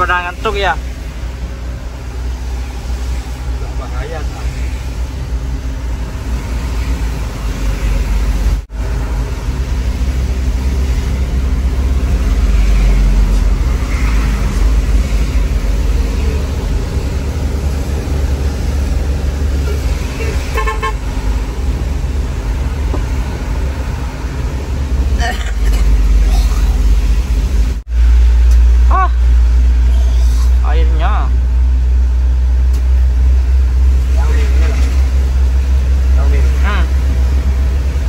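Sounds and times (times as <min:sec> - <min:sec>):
road noise: 0:00.0 - 0:38.0
truck engine running: 0:00.0 - 0:38.0
quick horn toots: 0:20.2 - 0:21.1.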